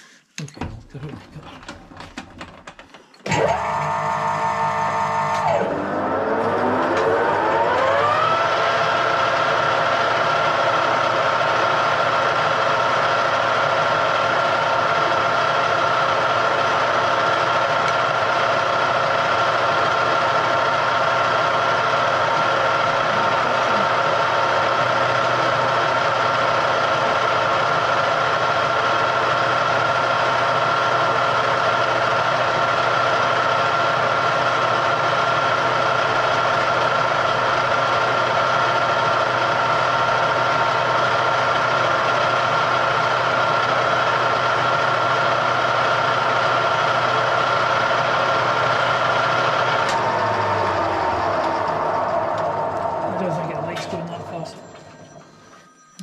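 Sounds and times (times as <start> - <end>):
electric motor whining: 3.3 - 12.2, 16.4 - 26.7, 47.1 - 56.0.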